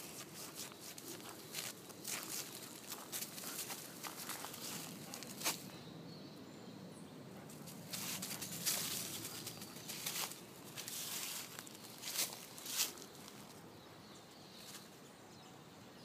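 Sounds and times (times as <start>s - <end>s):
footsteps on dry leaves: 0.0s - 5.7s, 7.6s - 13.6s.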